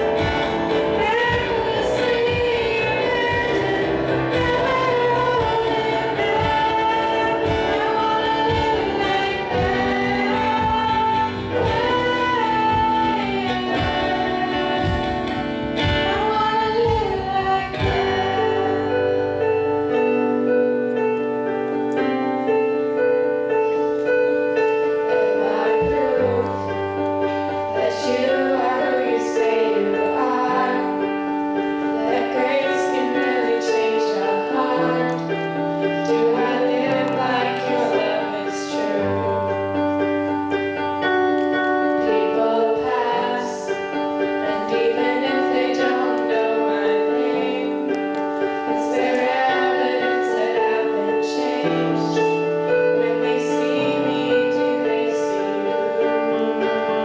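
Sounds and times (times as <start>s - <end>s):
drum kit: 0.0s - 18.7s
girls singing together: 0.0s - 19.5s, 24.7s - 40.1s, 41.1s - 57.0s
electric guitar: 0.0s - 57.0s
keyboard chords: 0.0s - 57.0s.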